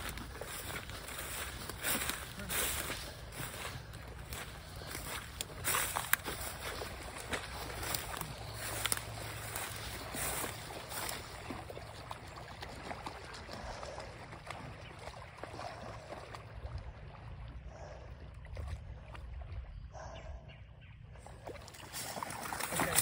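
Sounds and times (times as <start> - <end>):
footsteps crunching through dry grass: 0.0 - 12.0, 21.7 - 23.0.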